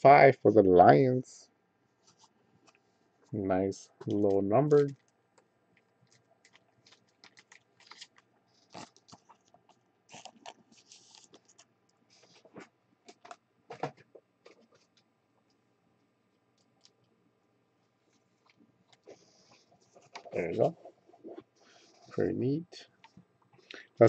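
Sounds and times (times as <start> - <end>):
cards clicking and rustling: 6.1 - 11.6.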